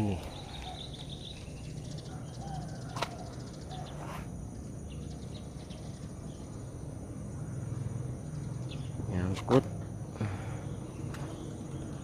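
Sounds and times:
bird chirps: 0:00.0 - 0:06.9, 0:08.2 - 0:09.3
insect chirps: 0:00.0 - 0:12.0
low steady rumble: 0:00.0 - 0:12.0.

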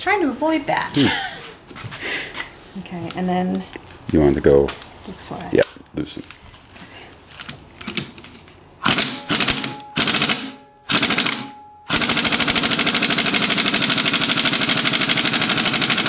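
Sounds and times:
pneumatic impact wrench hammering: 0:08.8 - 0:16.0.

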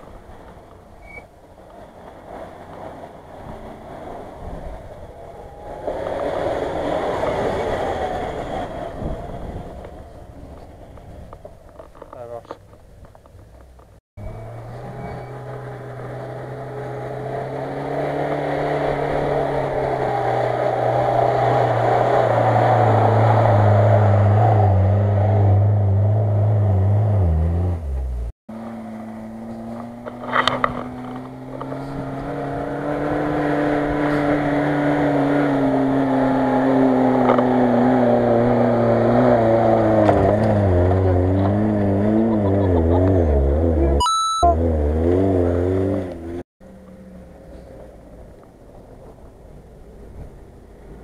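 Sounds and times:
off-road engine running hard: 0:14.2 - 0:48.0.

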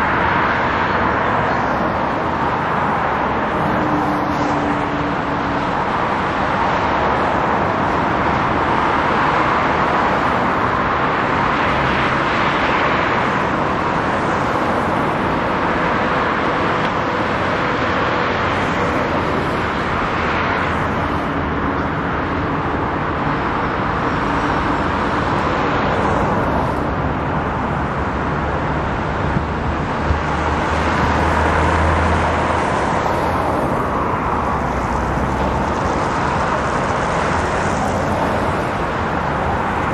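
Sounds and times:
cars passing: 0:00.0 - 0:39.9.

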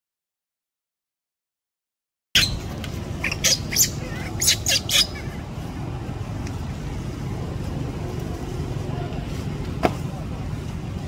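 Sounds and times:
baby monkey squealing: 0:02.4 - 0:05.4
steady low rumble: 0:02.5 - 0:11.0.

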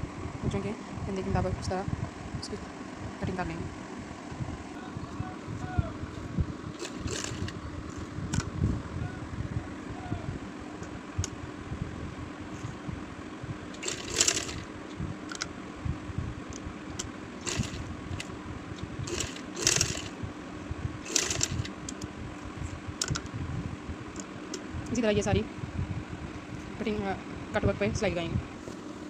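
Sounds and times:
sewing machine running: 0:06.8 - 0:08.0, 0:13.7 - 0:14.7, 0:17.4 - 0:18.3, 0:19.0 - 0:20.2, 0:21.0 - 0:21.7.

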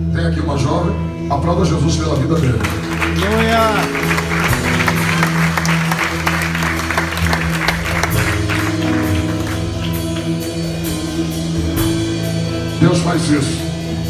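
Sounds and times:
worship band playing soft chords: 0:00.0 - 0:14.0
congregation applauding: 0:02.0 - 0:11.0.

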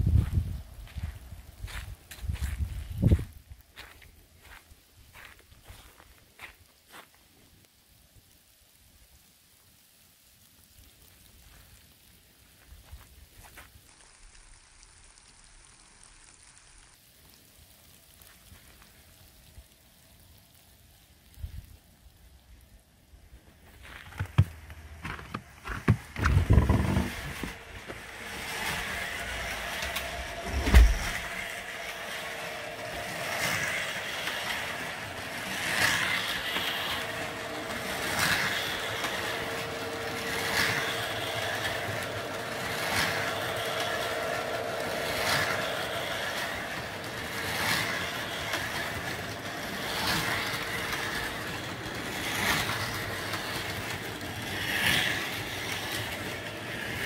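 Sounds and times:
swelling rush of passing car: 0:26.7 - 0:57.0.

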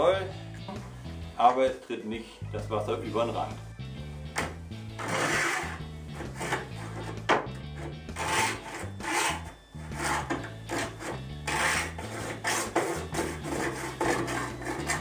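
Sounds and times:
hacksaw cutting plastic pipe: 0:04.4 - 0:15.0.

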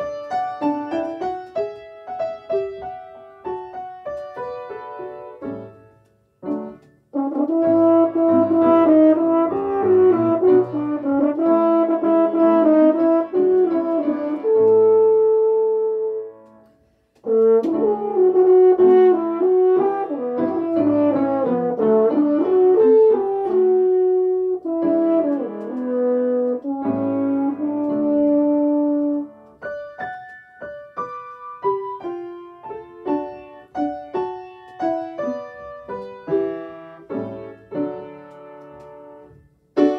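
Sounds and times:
piano accompaniment: 0:00.0 - 0:39.9
french horn melody: 0:07.1 - 0:16.4, 0:17.2 - 0:29.6.

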